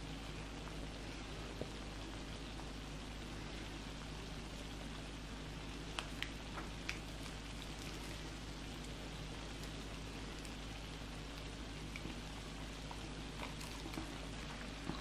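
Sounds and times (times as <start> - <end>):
shrimp sizzling on a griddle: 0.0 - 14.4
pops and crackles: 5.8 - 15.0.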